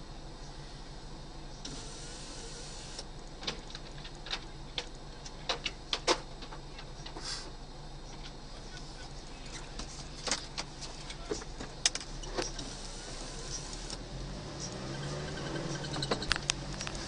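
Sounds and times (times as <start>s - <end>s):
low engine hum: 0.0s - 17.0s
hiss: 1.7s - 3.0s, 7.2s - 7.5s
sharp clicks and knocks: 3.2s - 7.2s.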